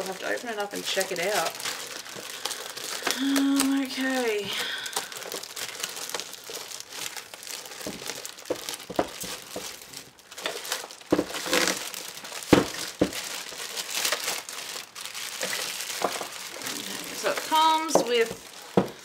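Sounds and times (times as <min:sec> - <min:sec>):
plastic wrap crinkling: 0:00.0 - 0:19.0.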